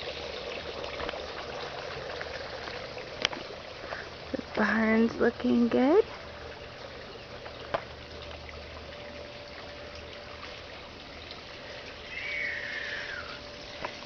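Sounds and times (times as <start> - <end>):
water trickling: 0.0 - 14.0
short falling call: 12.1 - 13.4.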